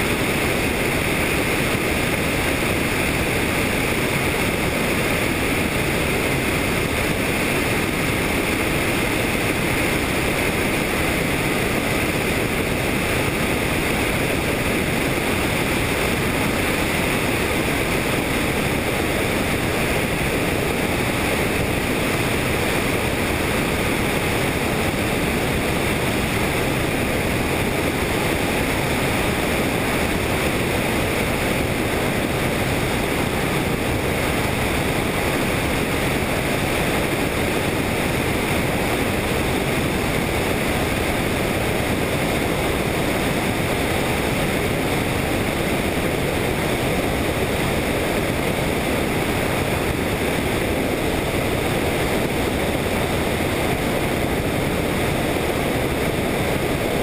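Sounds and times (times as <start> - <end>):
helicopter rotor and engine noise: 0.0 - 57.0
wind: 0.0 - 57.0.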